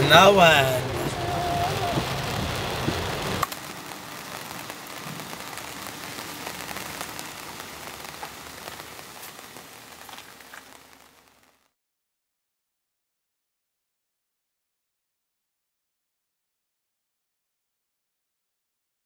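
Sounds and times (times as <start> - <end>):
rain falling: 0.0 - 11.8.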